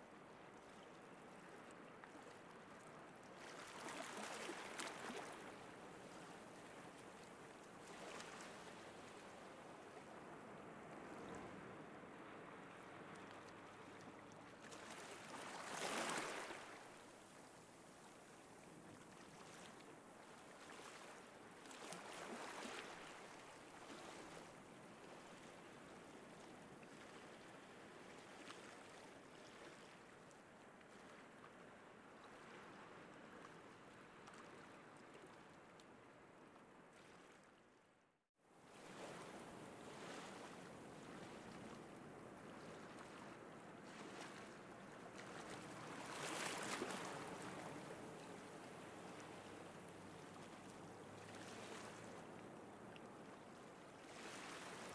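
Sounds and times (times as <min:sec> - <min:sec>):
waves breaking: 0:03.4 - 0:30.3, 0:38.7 - 0:54.9.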